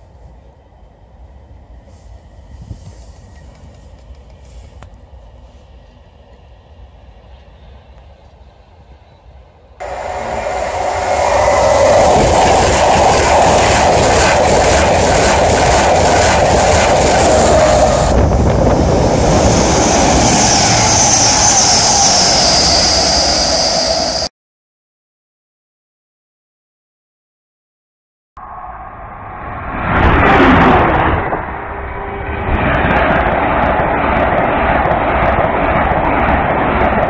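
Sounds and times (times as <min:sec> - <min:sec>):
high-speed train passing: 0:00.0 - 0:24.3, 0:28.4 - 0:37.0
train wheels clicking: 0:02.8 - 0:05.1, 0:09.8 - 0:18.2
high whine: 0:09.8 - 0:24.3, 0:28.4 - 0:37.0.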